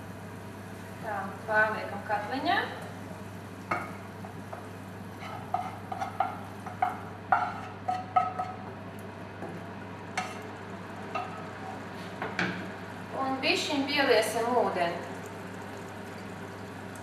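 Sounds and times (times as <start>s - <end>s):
wooden spatula scraping frying pan: 5.1s - 8.6s.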